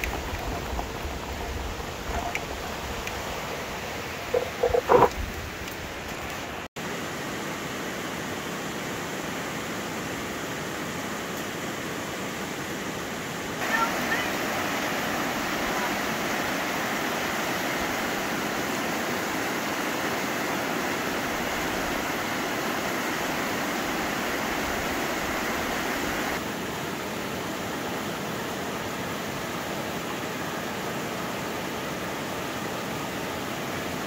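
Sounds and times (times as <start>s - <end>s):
river rapids rushing over rocks: 7.8s - 34.0s.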